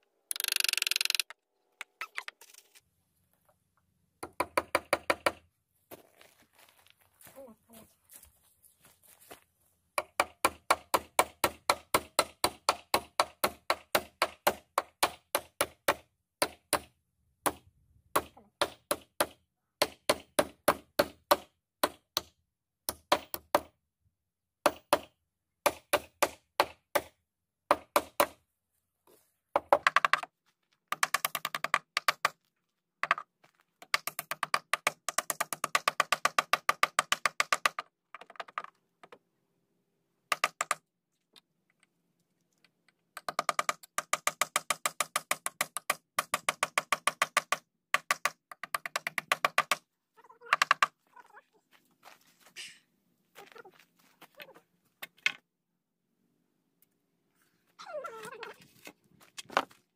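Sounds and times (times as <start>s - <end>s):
hammer driving nails into wood: 40.3s - 40.9s, 43.2s - 49.8s.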